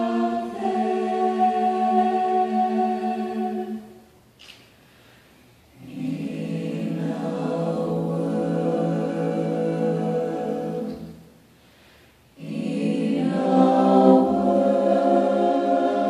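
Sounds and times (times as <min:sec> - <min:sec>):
choir singing held chords: 0:00.0 - 0:04.1, 0:05.7 - 0:11.4, 0:12.3 - 0:16.0.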